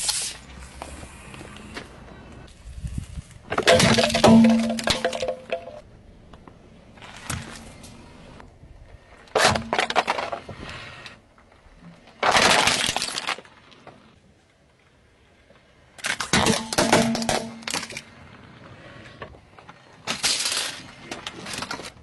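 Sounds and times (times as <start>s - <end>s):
plastic mask crunching under tyre: 12.0s - 13.6s.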